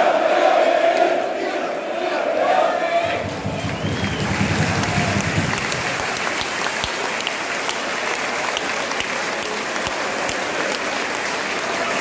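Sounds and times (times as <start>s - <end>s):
stadium crowd clapping: 3.0s - 12.0s.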